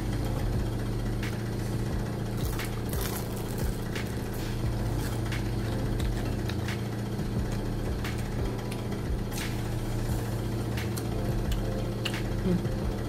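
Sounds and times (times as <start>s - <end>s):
steady low hum: 0.0s - 13.0s
person chewing food: 2.4s - 6.6s.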